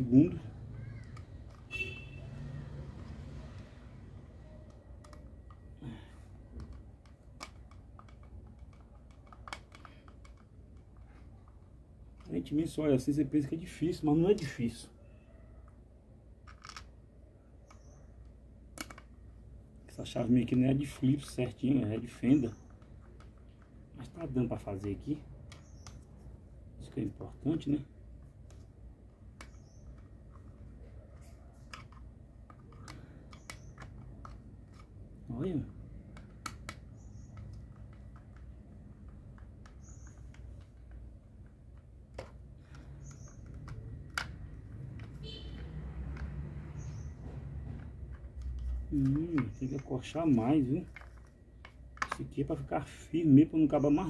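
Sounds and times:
screwdriver clicks on plastic parts: 6.6 - 11.3, 16.5 - 16.9, 18.7 - 19.1, 31.6 - 35.0, 36.0 - 45.2.

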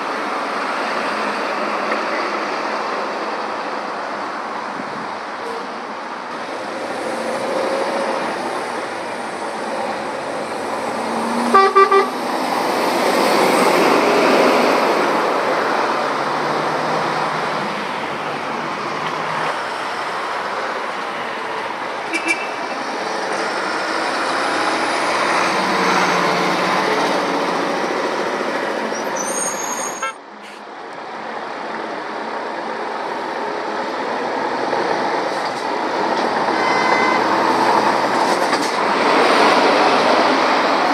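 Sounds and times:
lorries passing: 0.0 - 40.9
horn toots: 11.4 - 12.2, 36.6 - 37.3.

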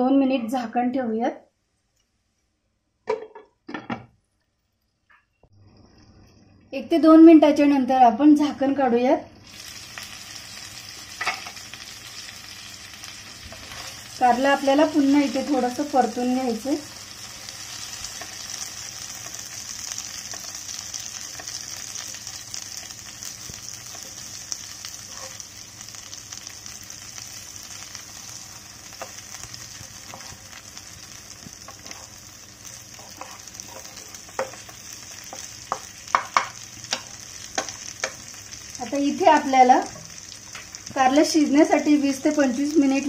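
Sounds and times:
food sizzling in hot oil: 9.0 - 43.0
spatula scraping a pan: 24.8 - 25.5, 28.9 - 30.8, 31.6 - 38.2.

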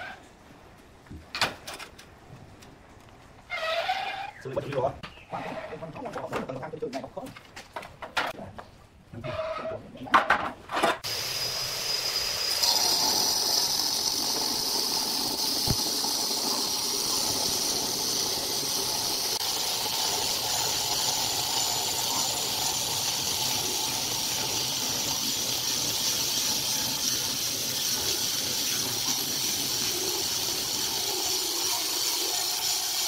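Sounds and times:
electric stone cutter cutting granite: 11.0 - 33.0.

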